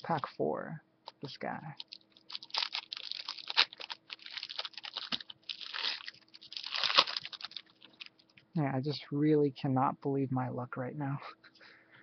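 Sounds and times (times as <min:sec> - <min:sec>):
foil wrapper crinkling and tearing: 0:01.7 - 0:08.4.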